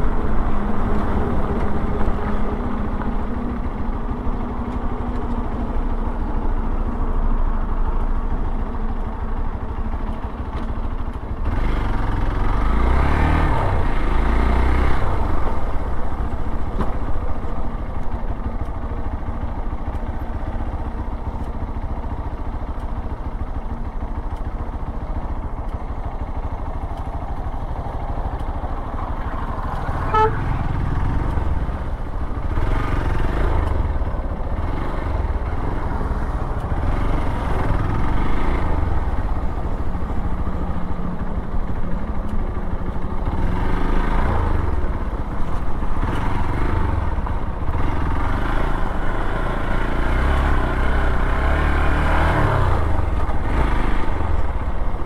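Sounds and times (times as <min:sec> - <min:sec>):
motorcycle engine revving: 0:10.0 - 0:17.1, 0:17.8 - 0:40.9, 0:43.2 - 0:55.0
short horn beep: 0:30.0 - 0:30.7.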